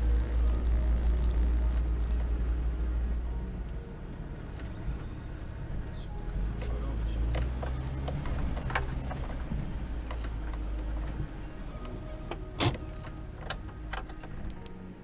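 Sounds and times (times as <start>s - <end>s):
car engine running low: 0.0s - 15.0s
car body knocks and rattles: 7.3s - 12.0s.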